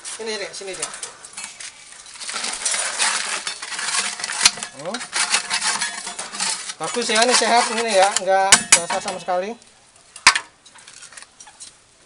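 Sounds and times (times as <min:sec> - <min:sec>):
gritty scraping and rattling: 0:00.0 - 0:11.8.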